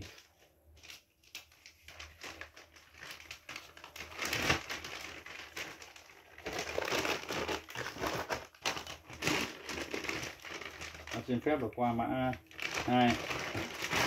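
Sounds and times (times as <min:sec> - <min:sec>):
crinkling handling noise: 0:00.0 - 0:14.0.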